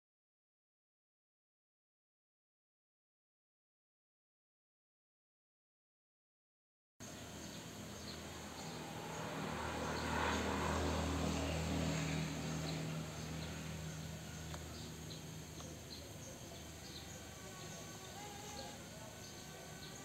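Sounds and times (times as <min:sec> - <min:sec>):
faint insect chirps: 0:07.0 - 0:20.0
vehicle passing: 0:07.0 - 0:20.0.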